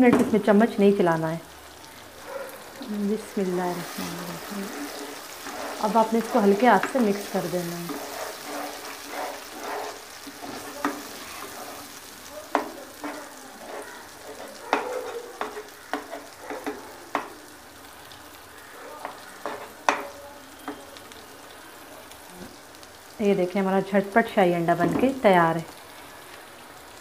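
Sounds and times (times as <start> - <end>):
eggs sizzling in hot oil: 0.0 - 27.0
wooden spoon scraping a wok: 2.8 - 17.4, 19.0 - 20.8
spoon knocking against pan: 12.5 - 17.4, 19.0 - 20.8.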